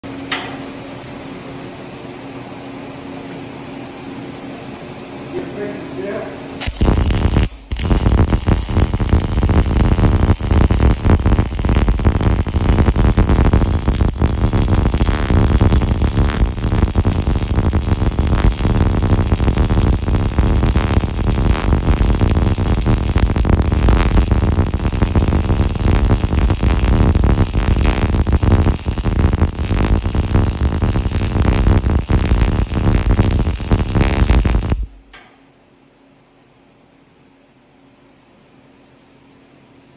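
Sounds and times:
welding arc crackling: 6.6s - 35.2s.

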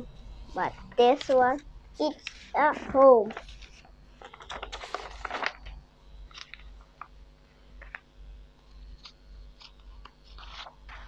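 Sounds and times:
paper rustling: 2.2s - 7.2s, 7.8s - 8.1s, 8.9s - 11.0s.

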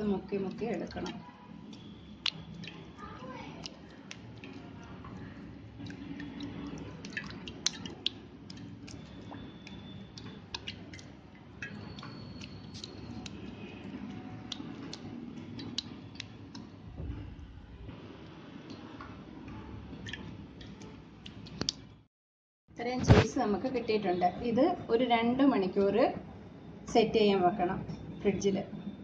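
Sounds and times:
soft wet squelching: 0.0s - 16.8s.

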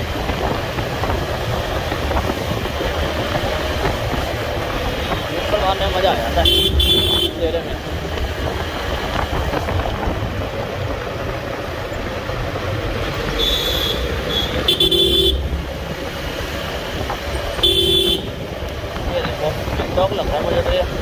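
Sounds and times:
vehicle horn honking: 6.4s - 7.4s, 13.4s - 15.5s, 17.6s - 18.4s.

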